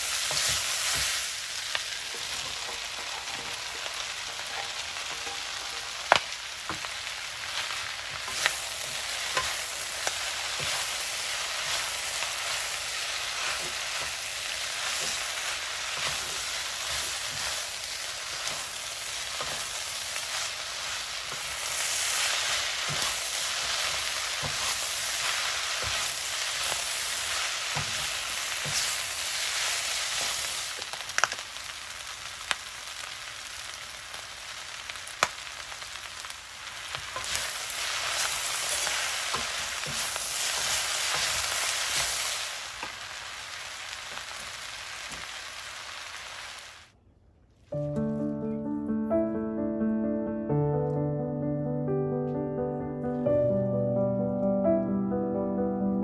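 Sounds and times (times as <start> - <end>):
food sizzling in a frying pan: 0.0 - 47.0
spatula knocking on pan: 2.0 - 7.0.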